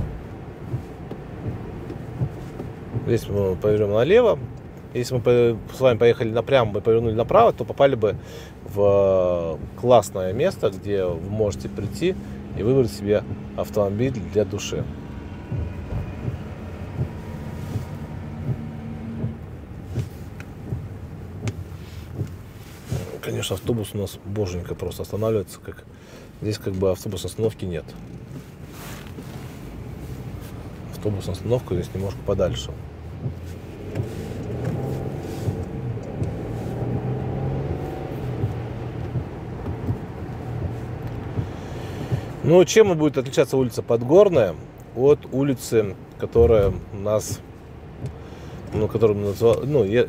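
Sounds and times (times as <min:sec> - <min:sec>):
light ticks: 0:00.0 - 0:08.8, 0:13.2 - 0:25.2, 0:30.4 - 0:42.4, 0:44.0 - 0:49.9
light knocks from bumps: 0:00.0 - 0:25.4, 0:26.5 - 0:42.9, 0:46.0 - 0:49.8
car engine and road rumble: 0:00.0 - 0:50.0.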